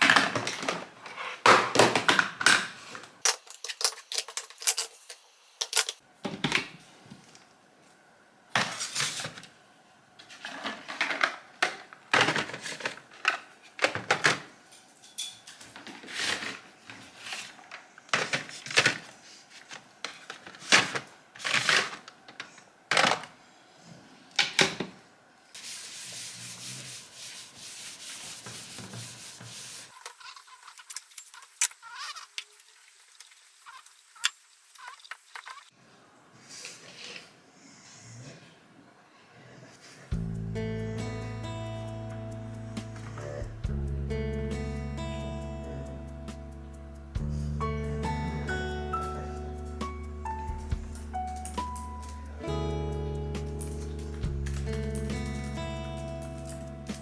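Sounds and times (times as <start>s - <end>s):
cloth rubbing on desktop: 25.6s - 30.0s.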